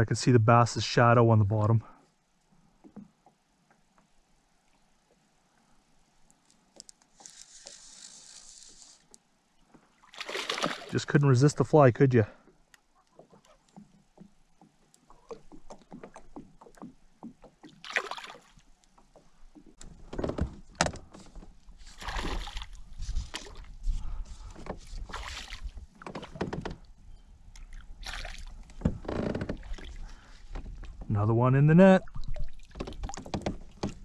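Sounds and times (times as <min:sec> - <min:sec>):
fish splashing at water surface: 0:10.0 - 0:11.0, 0:17.8 - 0:18.6, 0:22.0 - 0:22.8.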